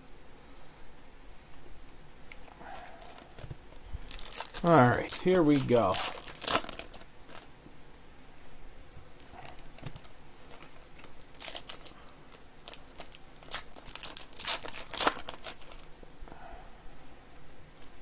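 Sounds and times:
foil wrapper tearing and crinkling: 2.3s - 7.5s, 9.2s - 15.9s.

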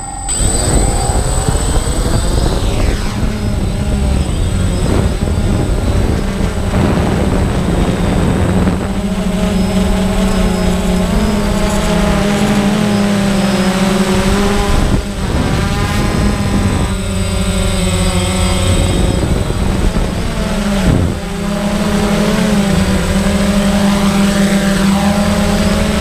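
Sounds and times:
wind rush: 0.0s - 21.5s
drone motors whining: 0.0s - 26.0s.

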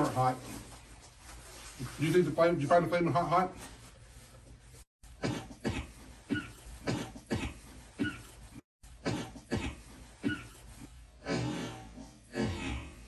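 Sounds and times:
man coughing into sleeve: 5.2s - 8.4s, 9.0s - 12.8s.

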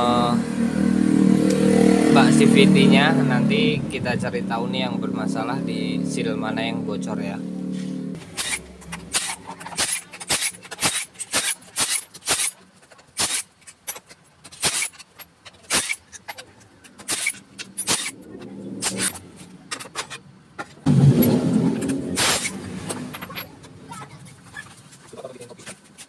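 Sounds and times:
hand tool clicking on bolts: 8.2s - 20.7s
metal cover scraping clatter: 8.2s - 26.0s.

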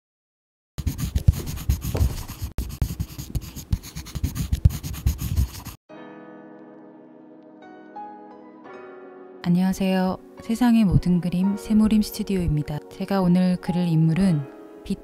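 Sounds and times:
pen scratching on paper: 0.8s - 5.8s
soft background music: 5.9s - 15.0s.

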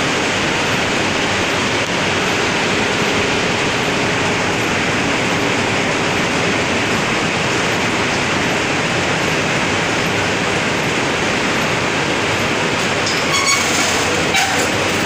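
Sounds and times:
loud rush of air and machinery: 0.0s - 15.0s.

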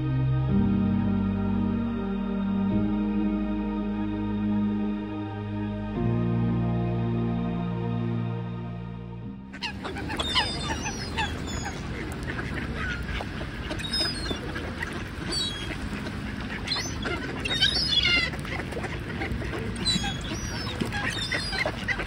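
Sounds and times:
steady low rumble: 0.0s - 20.3s
flock of ducks quacking: 9.5s - 22.0s
high squealing calls: 9.6s - 13.0s, 16.6s - 18.4s, 19.7s - 22.0s.

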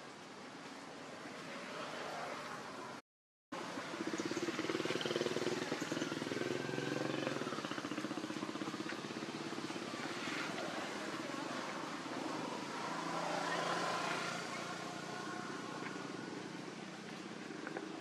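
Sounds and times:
small engine humming: 3.8s - 16.4s.

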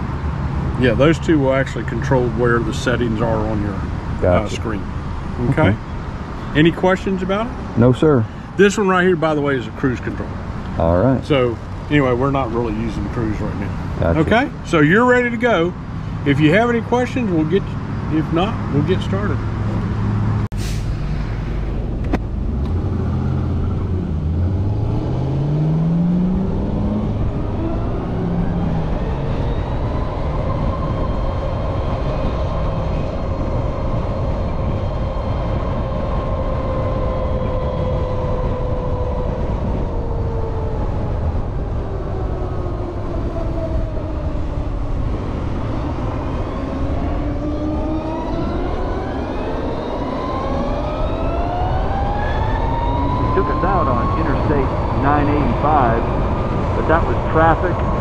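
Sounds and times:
road and wind noise: 0.0s - 58.0s.

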